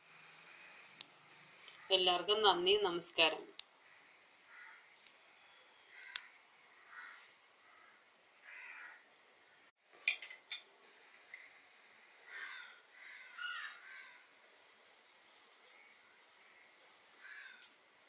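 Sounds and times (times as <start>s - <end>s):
faint bird calls: 3.8s - 9.0s, 12.3s - 14.3s.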